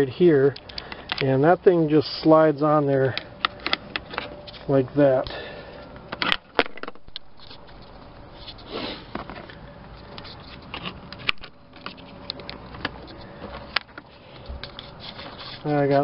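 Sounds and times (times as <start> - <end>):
rubbing scrape: 14.6 - 16.0.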